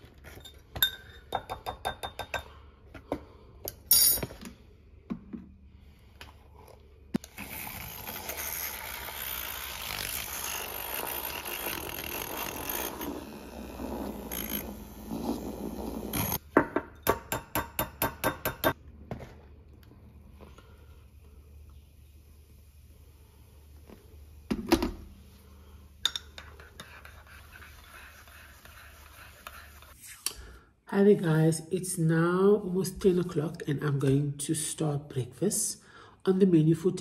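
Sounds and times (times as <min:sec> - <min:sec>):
milk frother whirring: 0:07.2 - 0:16.4, 0:26.4 - 0:30.0.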